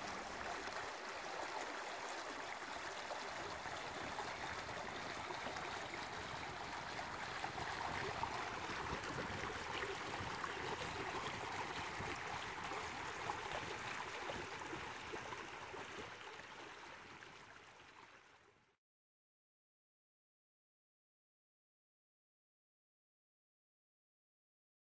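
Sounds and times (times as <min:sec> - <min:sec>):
creek babbling over stones: 0:00.0 - 0:18.7.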